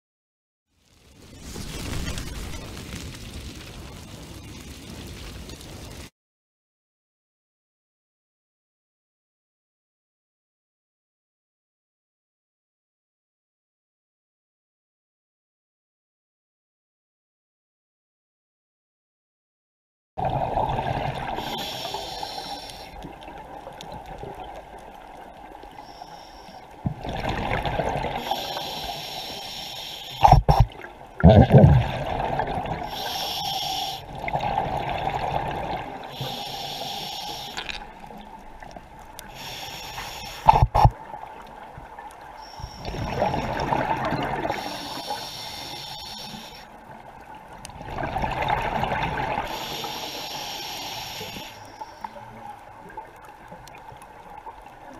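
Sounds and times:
exhaled bubbles rushing: 1.2 - 4.3, 26.9 - 28.3, 30.2 - 33.0, 34.1 - 36.2, 42.8 - 44.7, 47.8 - 49.5
regulator hiss on inhale: 21.3 - 23.1, 25.7 - 26.9, 28.1 - 30.7, 32.8 - 34.3, 36.0 - 38.1, 39.2 - 40.9, 42.4 - 43.6, 44.4 - 46.8, 49.4 - 52.4.

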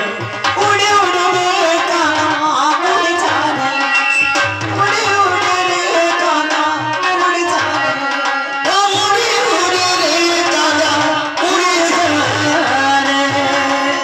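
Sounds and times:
harmonium: 0.0 - 14.0
woman singing through microphone: 0.0 - 14.0.

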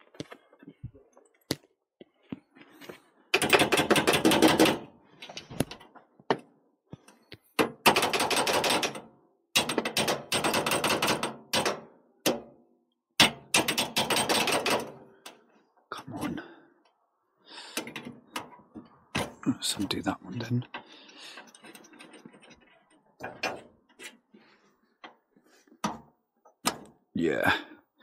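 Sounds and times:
rapid mechanical tool clicking: 3.4 - 4.8, 7.8 - 9.0, 9.6 - 11.8, 13.2 - 14.9.

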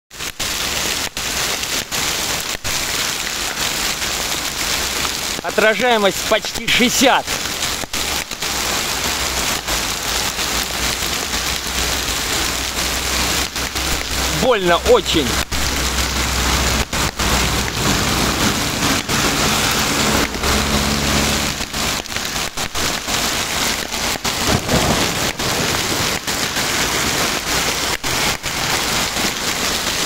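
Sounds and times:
hail and rain on asphalt: 0.1 - 30.0
vehicle engine humming: 11.6 - 25.0.

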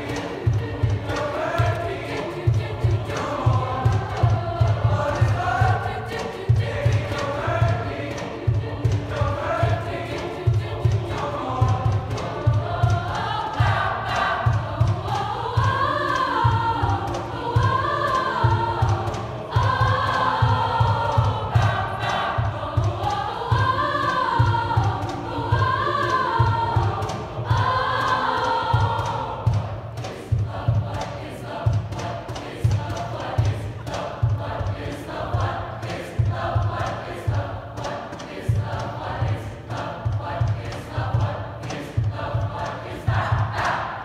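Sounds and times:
choir singing in unison: 0.0 - 44.0
low thumping beat: 0.0 - 44.0.

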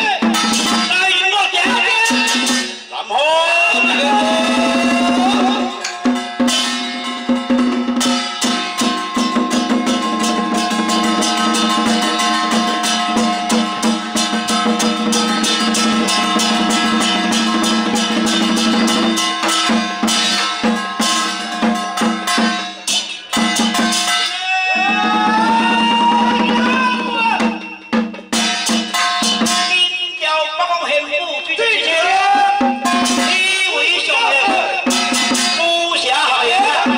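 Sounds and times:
drum beating: 0.0 - 2.9, 3.6 - 30.2, 31.8 - 36.9
gongs ringing: 3.7 - 25.1.

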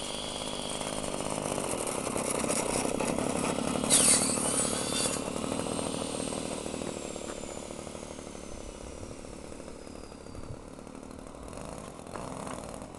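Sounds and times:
model plane engine idling: 0.0 - 12.9.

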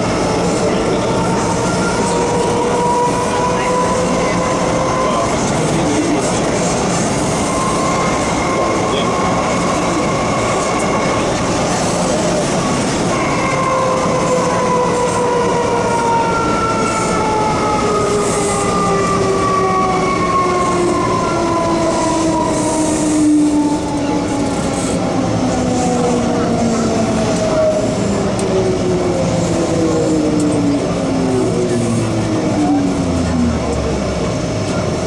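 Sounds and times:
wheels rumbling on track: 0.0 - 35.0
train motor whine falling in pitch: 6.8 - 25.7.

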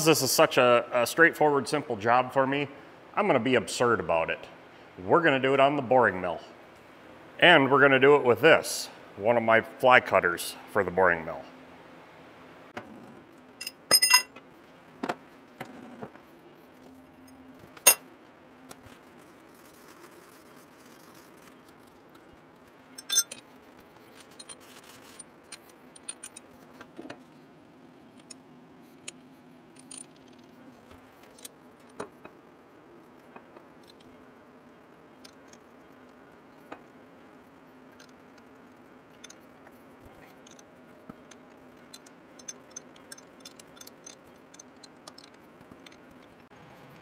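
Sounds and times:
faint steady hum: 0.0 - 47.0
metallic clicks and clinks: 23.0 - 23.5, 24.2 - 26.5, 40.2 - 46.5.

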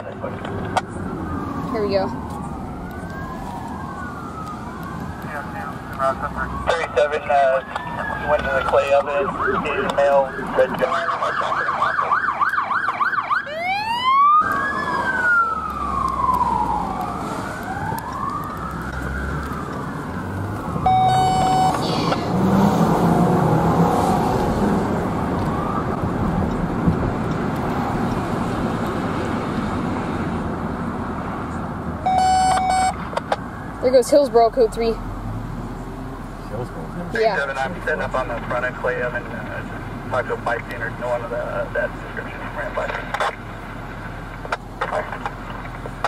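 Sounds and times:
police sirens yelping and wailing: 0.0 - 46.0
traffic noise: 0.0 - 46.0
air horn blasts: 20.9 - 21.9.

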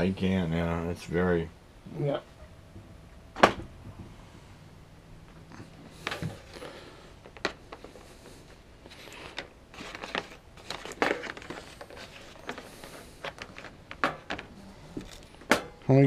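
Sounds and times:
power cord rustling on cardboard: 5.9 - 15.3.

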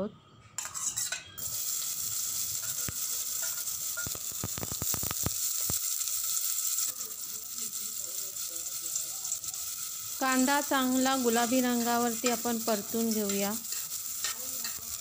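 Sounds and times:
onion sizzling in hot oil: 0.6 - 15.0
steel spoon clicking on pot: 2.6 - 5.7, 11.7 - 15.0.

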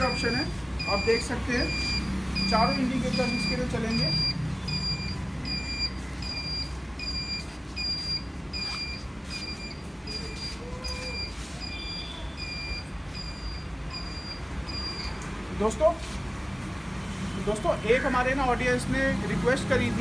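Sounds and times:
indicator buzzer beeping: 0.0 - 15.2.

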